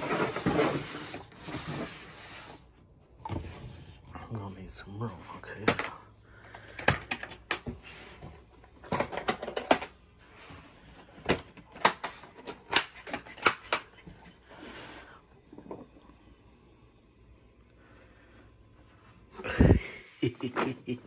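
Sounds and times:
sliding and rubbing on plastic: 0.0s - 2.8s.

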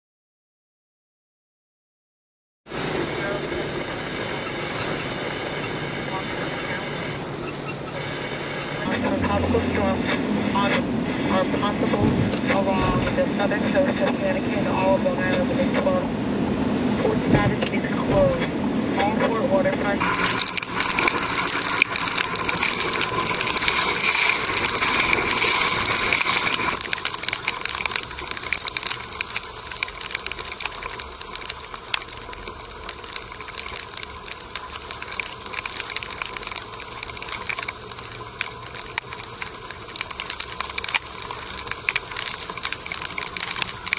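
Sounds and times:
heavy rain on car roof: 2.7s - 9.9s, 20.0s - 43.9s.

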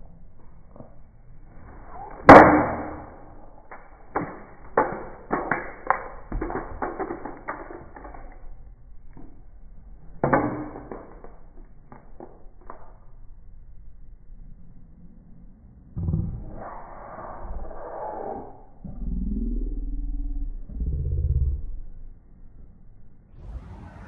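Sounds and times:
sharp knocks and clatters: 2.3s - 8.4s, 10.2s - 13.0s.

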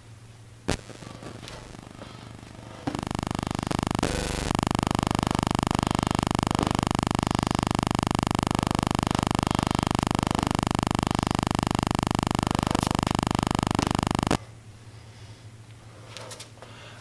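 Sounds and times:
faint clicks: 0.7s - 14.4s
pulsing electronic drone: 0.7s - 14.4s.

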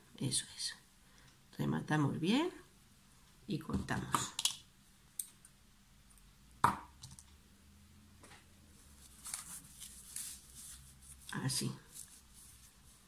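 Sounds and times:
fabric rustling: 8.7s - 13.0s.

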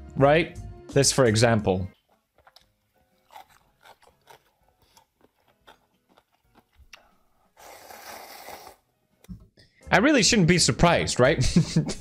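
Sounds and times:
faint chewing: 1.9s - 8.8s
loud slurp of noodles: 7.6s - 8.9s.

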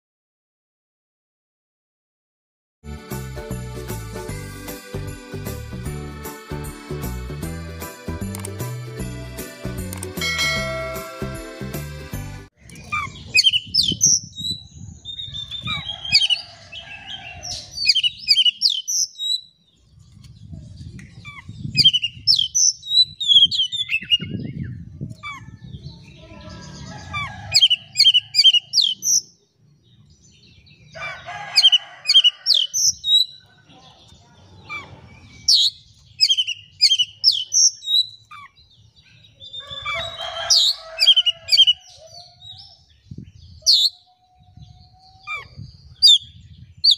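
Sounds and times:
bird whistling and chattering: 12.7s - 15.9s, 17.8s - 19.4s, 21.2s - 24.4s, 34.7s - 38.6s, 43.6s - 44.0s, 45.2s - 46.9s.

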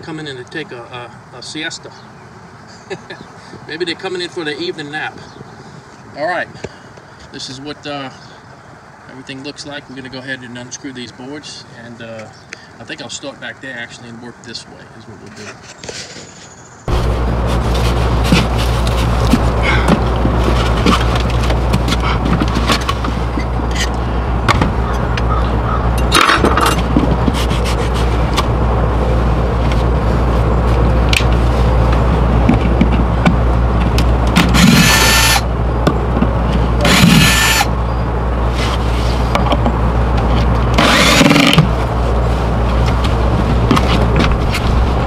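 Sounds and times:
steady low hum: 16.9s - 45.0s
cordless drill backing out screws: 34.4s - 35.4s, 36.8s - 37.7s, 40.8s - 41.6s.

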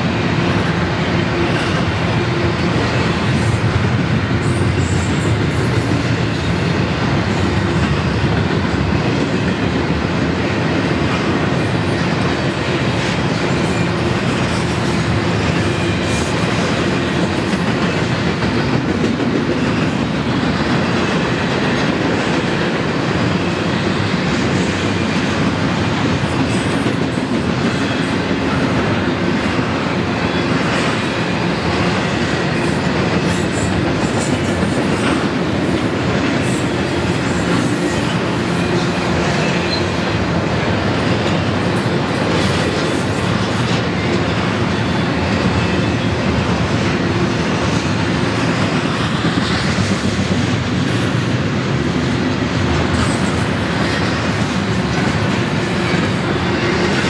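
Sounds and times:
freight train rolling past: 0.0s - 57.0s.

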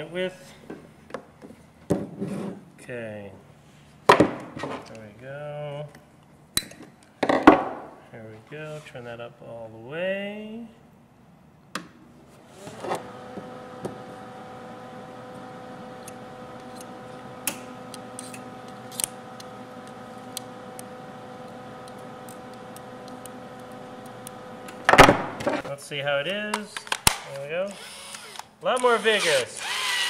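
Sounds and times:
welder humming: 12.6s - 25.6s
sparks crackling: 16.0s - 24.8s.

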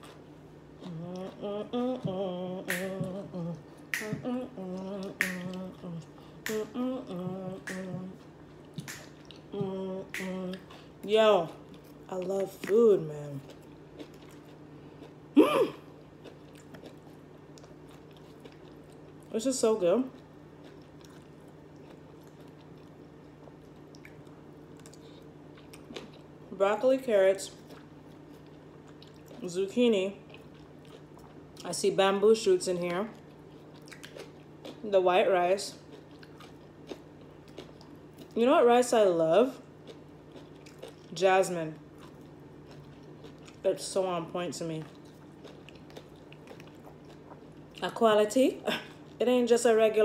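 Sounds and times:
soft chewing: 0.0s - 26.5s, 27.3s - 38.8s, 39.4s - 49.3s
low hum: 0.0s - 49.2s
woman humming: 0.8s - 8.2s, 9.5s - 10.8s
finger snapping: 2.7s - 3.0s, 4.0s - 4.2s, 5.2s - 5.5s.

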